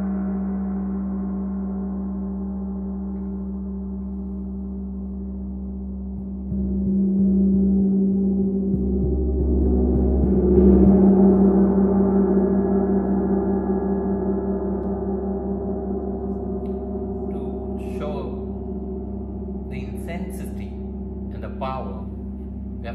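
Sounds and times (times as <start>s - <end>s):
large gong ringing: 8.2s - 22.9s.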